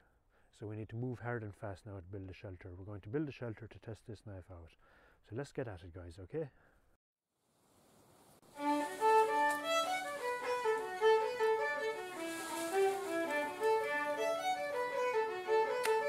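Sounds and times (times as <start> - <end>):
fiddle music: 8.5 - 16.0.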